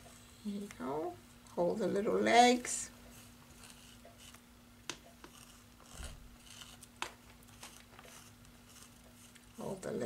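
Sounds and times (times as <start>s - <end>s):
chalk scratching on canvas: 3.1s - 4.4s, 5.2s - 6.9s, 7.6s - 9.6s.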